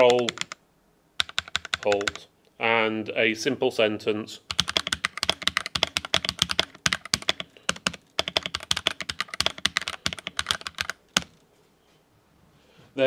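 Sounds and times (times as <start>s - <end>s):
mechanical keyboard typing: 0.0s - 0.6s, 1.2s - 2.2s, 4.5s - 11.4s.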